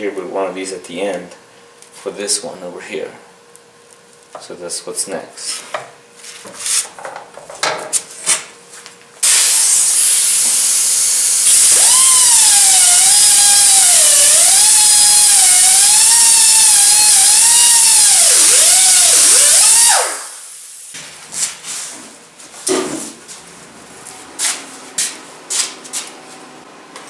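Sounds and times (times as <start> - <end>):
pneumatic cut-off tool whining: 9.2 - 20.9.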